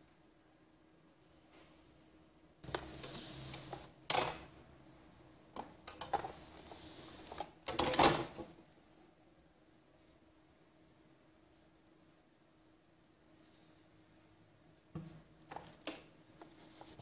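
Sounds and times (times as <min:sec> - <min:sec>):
fabric rustling and rubbing: 0:02.6 - 0:05.6, 0:06.2 - 0:07.6, 0:08.3 - 0:17.0.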